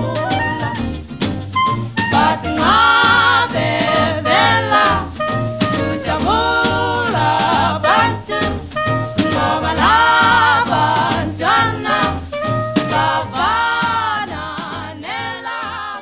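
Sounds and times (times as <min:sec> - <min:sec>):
song with singing and drums: 0:00.0 - 0:01.0, 0:02.0 - 0:16.0.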